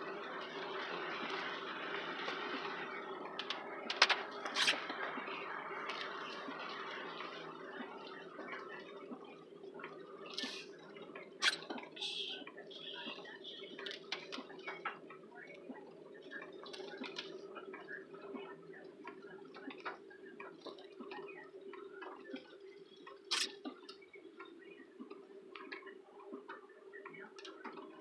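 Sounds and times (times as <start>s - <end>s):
raindrops tapping on car: 0.1s - 22.4s.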